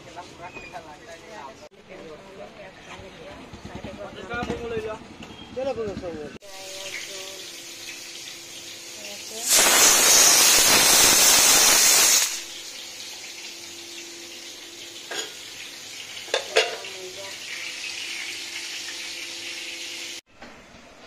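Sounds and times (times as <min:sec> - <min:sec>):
food sizzling in hot oil: 0:06.4 - 0:20.2
metal utensils clinking: 0:15.0 - 0:15.5, 0:16.2 - 0:17.0.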